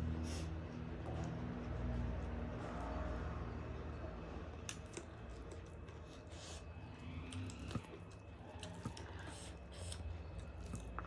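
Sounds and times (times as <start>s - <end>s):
close chewing: 4.6s - 11.0s.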